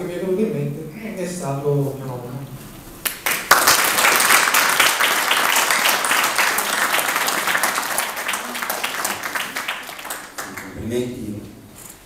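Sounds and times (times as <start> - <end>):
audience applauding: 3.1 - 11.1.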